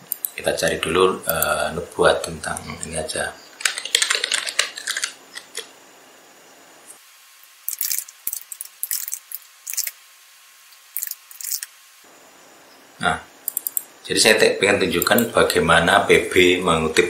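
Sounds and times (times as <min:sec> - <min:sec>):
keyboard typing: 0:03.6 - 0:05.7, 0:13.5 - 0:13.8.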